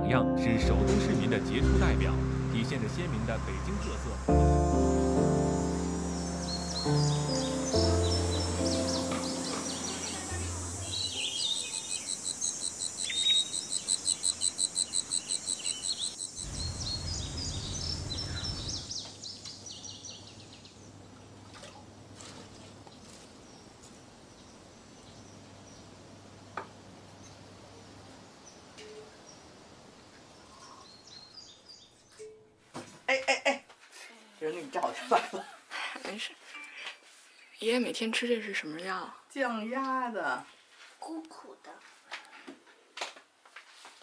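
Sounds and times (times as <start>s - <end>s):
high-pitched insect buzz: 5.2s - 17.2s
bird chirping: 5.8s - 21.0s
low rumble: 16.5s - 18.8s.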